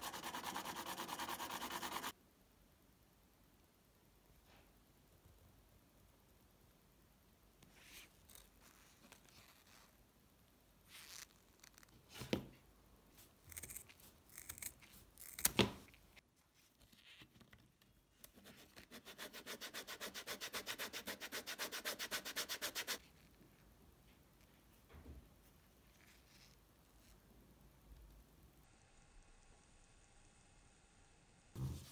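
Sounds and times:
fast rubbing: 0:00.0 - 0:02.1
scissors cutting leather: 0:13.5 - 0:15.7.

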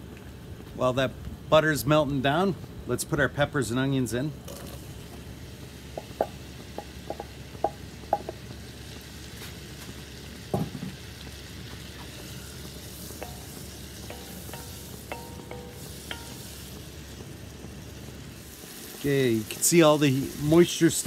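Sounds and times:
vegetables sizzling in butter: 0:04.4 - 0:21.0
spoon knocking against pot: 0:06.0 - 0:08.4, 0:13.2 - 0:16.4.

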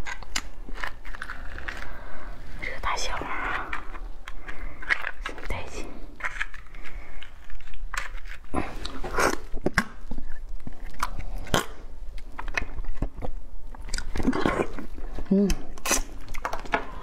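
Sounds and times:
crab shell cracking: 0:00.0 - 0:02.0.

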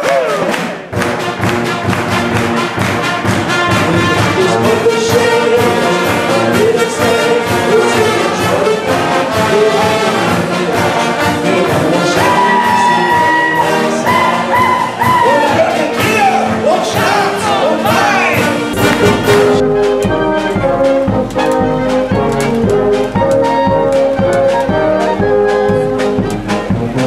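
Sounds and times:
brass band playing: 0:00.0 - 0:27.0.

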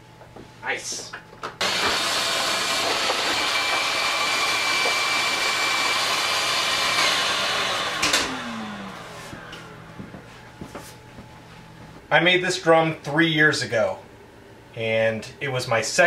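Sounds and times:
shop vac motor whining: 0:01.6 - 0:10.6.

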